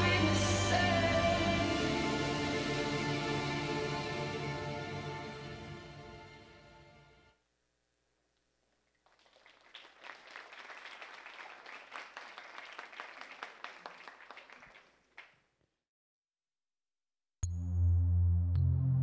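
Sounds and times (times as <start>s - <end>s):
audience applauding: 9.0s - 15.4s.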